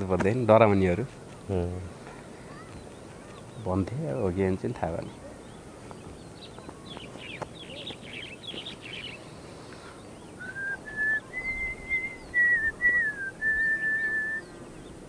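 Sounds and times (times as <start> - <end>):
faint bird chirps: 0.4 - 15.0
person whistling a tune: 10.4 - 14.4.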